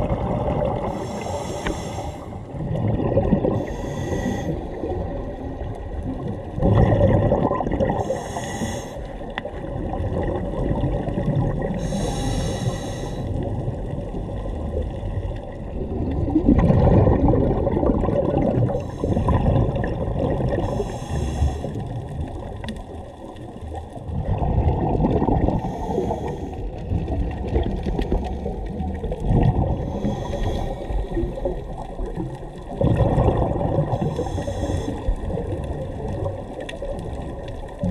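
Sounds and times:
bubbling underwater exhalations: 0:00.0 - 0:01.4, 0:02.5 - 0:08.4, 0:09.5 - 0:12.2, 0:13.3 - 0:21.0, 0:24.0 - 0:37.9
hissing regulator inhalations: 0:00.9 - 0:02.4, 0:03.6 - 0:04.7, 0:08.0 - 0:09.1, 0:11.8 - 0:13.3, 0:18.8 - 0:19.4, 0:20.6 - 0:21.8, 0:25.6 - 0:26.6, 0:29.9 - 0:31.0, 0:34.0 - 0:35.1.

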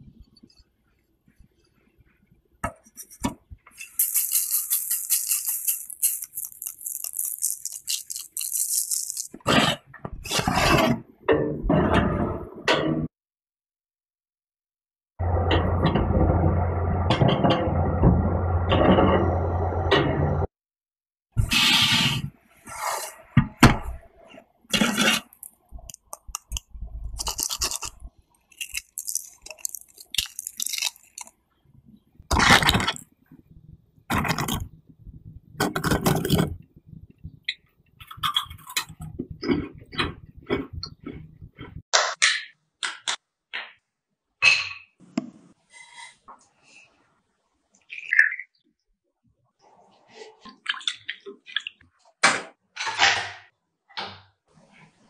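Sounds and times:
sugar rattling through metal strainer: 0:03.8 - 0:09.4, 0:27.2 - 0:31.3.

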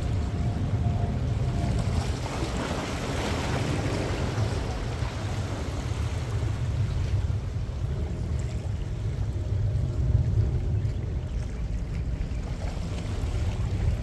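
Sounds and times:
wind rumbling on microphone: 0:00.0 - 0:14.0
waves splashing against rocks: 0:01.7 - 0:08.3.

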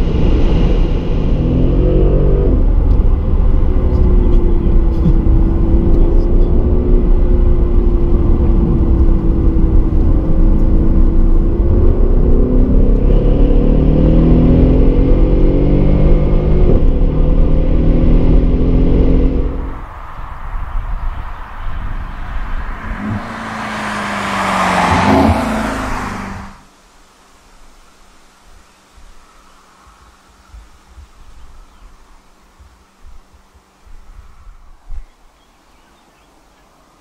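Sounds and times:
road and wind rumble: 0:00.0 - 0:37.0
car engine from inside cabin: 0:02.4 - 0:19.8.

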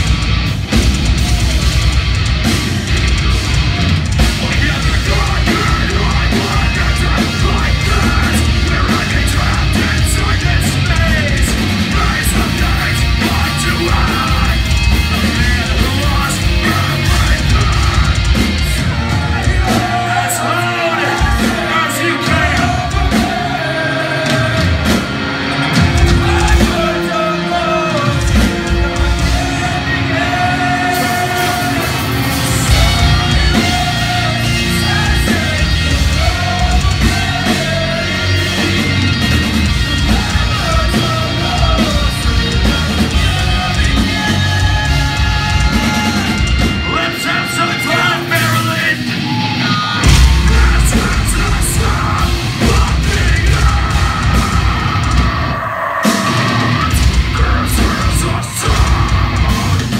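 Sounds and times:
distorted electric guitars: 0:00.0 - 0:59.9
drums: 0:00.0 - 0:59.9
person singing and shouting: 0:03.4 - 0:25.0, 0:25.8 - 0:59.9.

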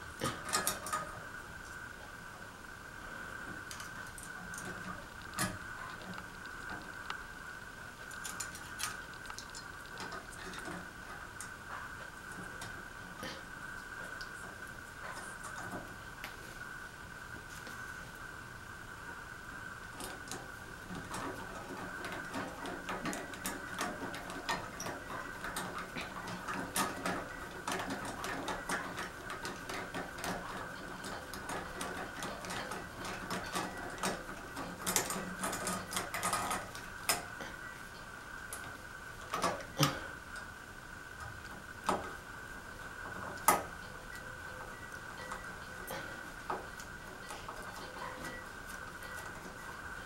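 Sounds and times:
faint high hum: 0:00.0 - 0:50.0
small clicks and tapping: 0:08.0 - 0:16.4.

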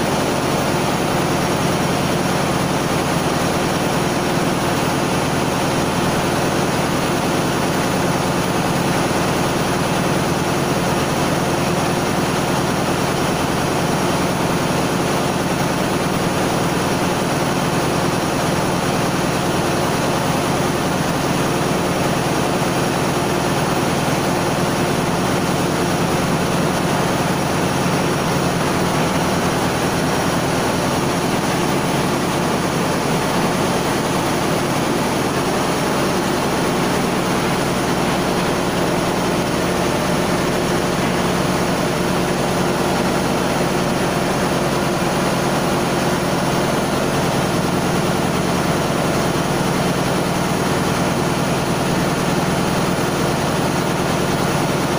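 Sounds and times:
engine room machinery drone: 0:00.0 - 0:54.9.

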